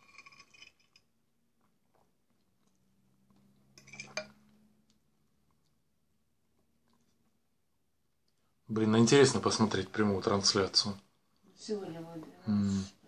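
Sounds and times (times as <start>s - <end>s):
metal spoon scraping ceramic bowl: 0.0s - 1.1s, 3.7s - 4.4s
quiet chewing: 0.2s - 8.5s.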